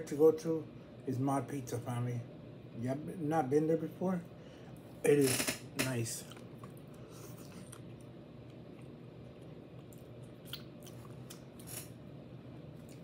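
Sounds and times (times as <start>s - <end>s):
low steady hum: 0.0s - 13.0s
person chewing food: 6.2s - 12.0s, 12.7s - 13.0s.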